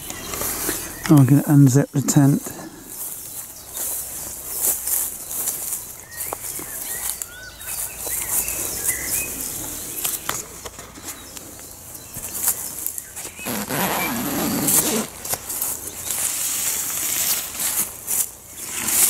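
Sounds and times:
bird chirps: 0:00.0 - 0:10.4
rustling and handling noise: 0:02.2 - 0:19.0
tent zip pulled open: 0:13.4 - 0:15.4, 0:18.6 - 0:19.0.

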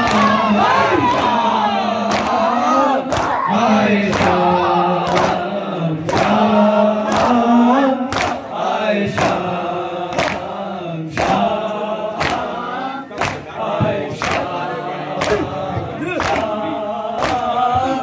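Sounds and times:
men's chorus chanting: 0:00.0 - 0:18.0
unison chest-beating slaps: 0:02.1 - 0:02.4, 0:03.1 - 0:03.4, 0:05.0 - 0:05.4, 0:06.1 - 0:06.5, 0:07.1 - 0:07.4, 0:08.1 - 0:08.4, 0:09.1 - 0:09.5, 0:10.1 - 0:10.5, 0:11.2 - 0:11.6, 0:12.2 - 0:14.5, 0:15.2 - 0:16.6, 0:17.2 - 0:17.6.

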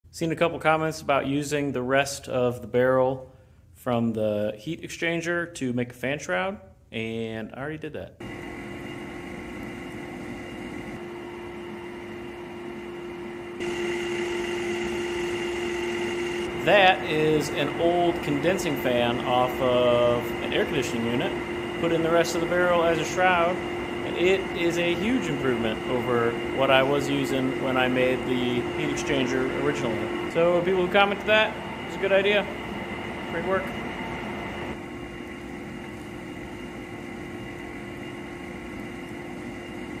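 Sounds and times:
fan motor hum and whine: 0:08.2 - 0:40.0
fan rushing air: 0:08.2 - 0:40.0.

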